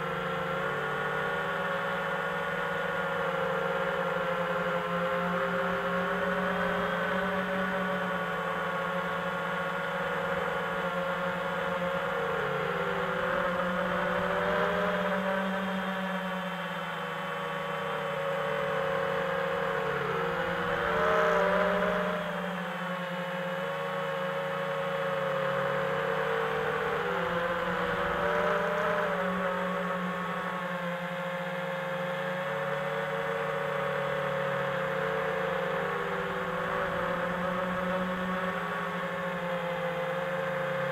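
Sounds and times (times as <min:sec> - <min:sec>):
drone motors and propellers whining: 0:00.0 - 0:40.9.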